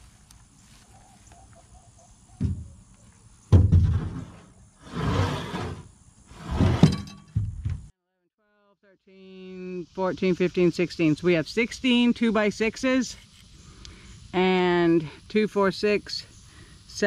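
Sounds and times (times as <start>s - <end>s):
wooden boards thumping: 2.4s - 2.8s, 3.5s - 4.4s, 6.6s - 7.9s
boards scraping over each other: 3.7s - 7.2s.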